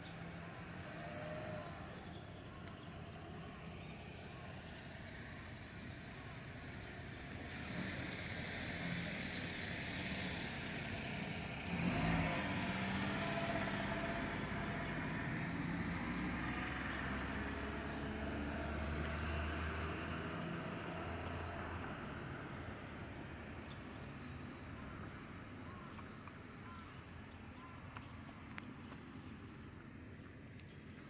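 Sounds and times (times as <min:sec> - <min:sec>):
vehicle engine hum: 0:00.0 - 0:31.0.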